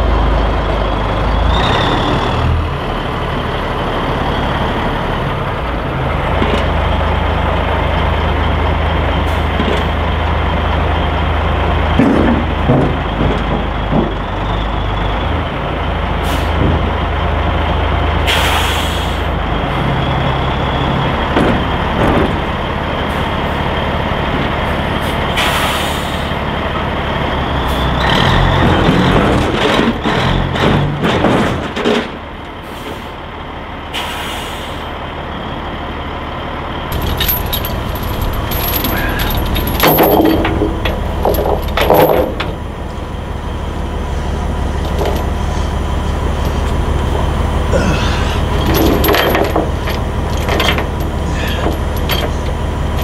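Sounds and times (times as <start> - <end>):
diesel truck engine idling: 0.0 - 31.0, 31.6 - 53.0
air brake hiss: 16.2 - 16.6, 18.2 - 19.3, 25.0 - 26.4, 33.9 - 35.0
metallic knocks: 36.9 - 42.6, 48.6 - 52.6.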